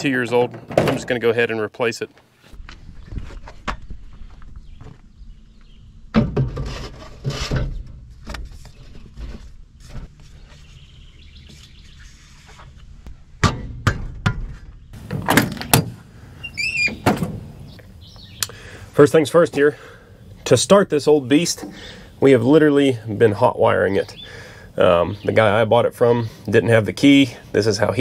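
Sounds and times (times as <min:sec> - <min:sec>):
air filter housing knocks and scrapes: 0:00.3 - 0:01.3, 0:06.1 - 0:10.6, 0:13.4 - 0:16.0
bird chirping: 0:03.0 - 0:06.1, 0:09.8 - 0:12.9, 0:16.3 - 0:18.8, 0:23.8 - 0:25.7.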